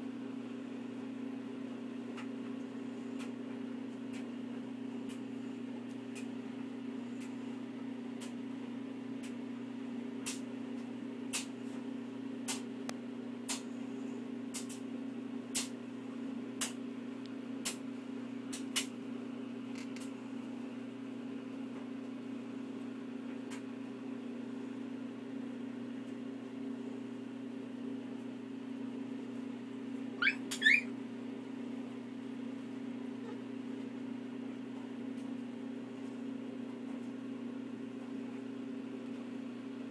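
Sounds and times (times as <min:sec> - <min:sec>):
steady low hum: 0:00.0 - 0:39.9
puppies squeaking: 0:30.2 - 0:30.9.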